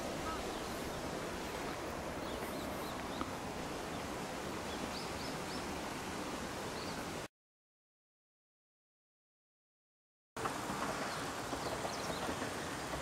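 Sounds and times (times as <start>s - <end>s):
open-air outdoor noise: 0.0s - 7.3s, 10.4s - 13.0s.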